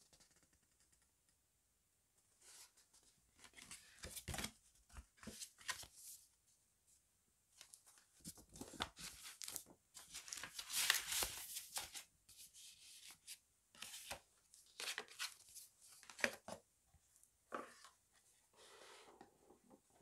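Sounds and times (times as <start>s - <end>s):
paper and card rustling: 3.4s - 6.2s, 7.6s - 16.6s.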